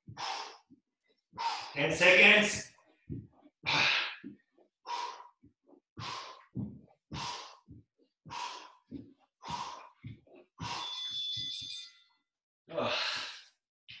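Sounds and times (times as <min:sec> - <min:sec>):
faint low thuds: 0:06.0 - 0:07.8.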